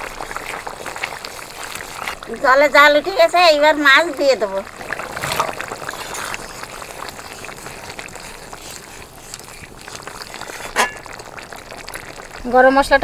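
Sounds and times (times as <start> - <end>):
curry boiling in a wok: 0.0 - 13.0.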